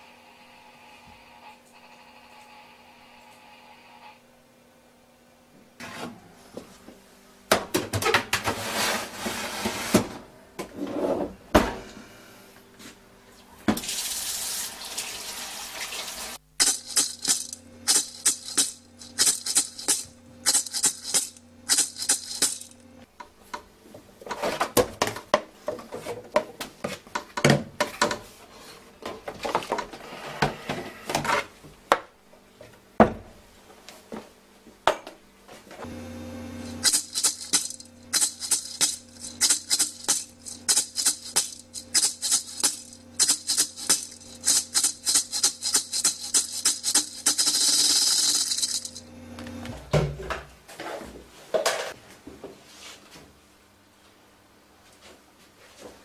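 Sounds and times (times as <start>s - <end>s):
rhythmic beat: 16.6s - 22.8s, 36.8s - 49.0s.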